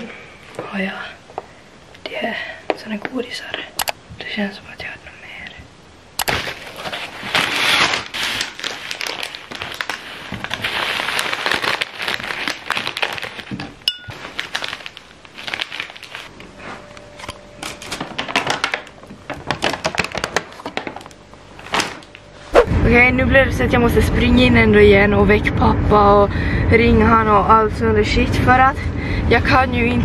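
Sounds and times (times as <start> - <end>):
paper and plastic wrapping crinkling: 6.3 - 22.3.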